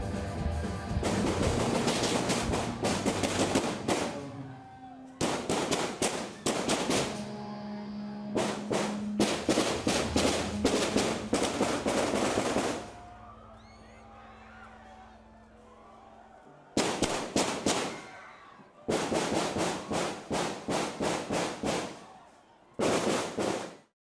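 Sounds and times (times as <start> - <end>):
automatic rifle fire echoing: 1.1 - 4.3, 5.2 - 7.2, 8.4 - 13.0, 16.8 - 18.0, 22.8 - 23.8
steady low hum: 7.1 - 13.4.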